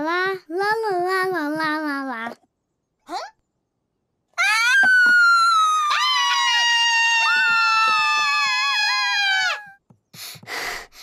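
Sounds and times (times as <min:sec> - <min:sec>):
cartoon high-pitched scream: 0:04.4 - 0:09.8.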